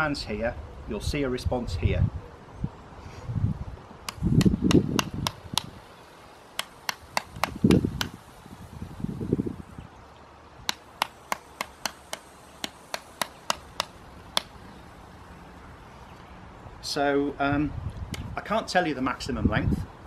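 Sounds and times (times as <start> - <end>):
small switches clicking: 4.0 - 5.7, 6.6 - 8.2, 10.7 - 14.6.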